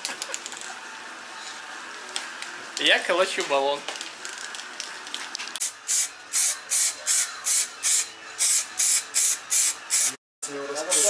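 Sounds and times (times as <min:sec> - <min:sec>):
spray-paint can hissing: 0:05.6 - 0:10.2.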